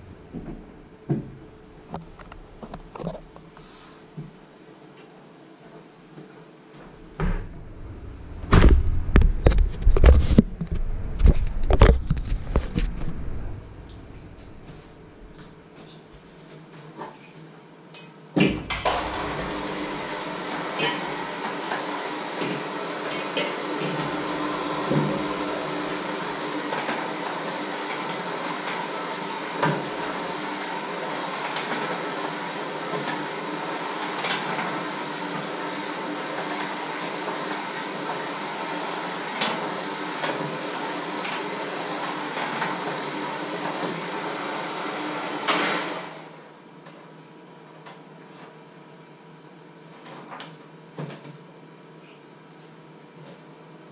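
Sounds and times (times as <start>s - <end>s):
steady mechanical whir: 6.8s - 15.6s.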